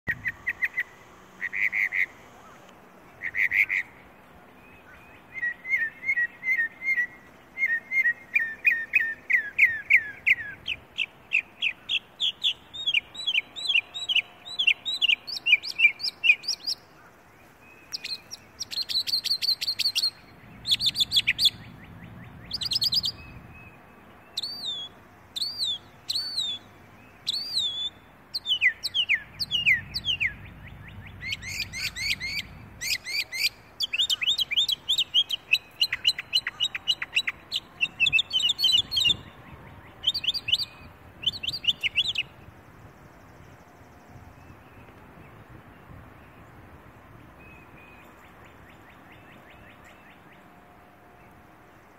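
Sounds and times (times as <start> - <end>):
mockingbird singing varied phrases: 3.2 - 4.0, 4.9 - 16.9, 17.7 - 39.3, 39.9 - 42.4.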